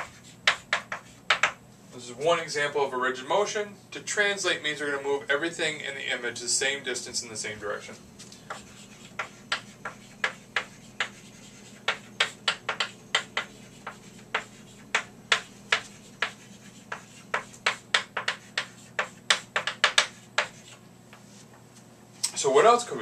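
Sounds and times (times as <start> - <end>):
chalk writing on chalkboard: 0.0 - 1.6, 8.4 - 21.5.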